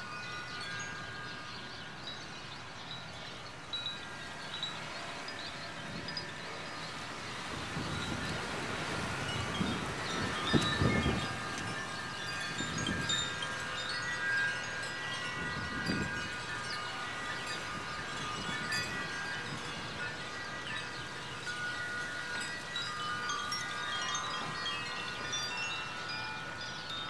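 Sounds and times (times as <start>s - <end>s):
wind chimes ringing: 0.0s - 27.0s
wind gusts on microphone: 3.8s - 27.0s.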